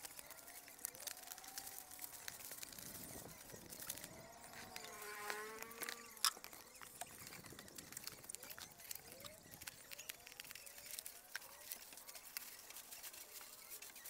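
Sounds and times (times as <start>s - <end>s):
plastic and cardboard rustling: 0.0s - 14.0s
insect buzzing: 1.6s - 9.6s.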